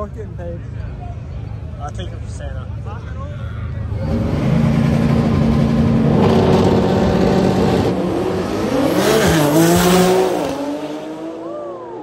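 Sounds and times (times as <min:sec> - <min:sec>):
racing car engines revving: 0:03.6 - 0:12.0.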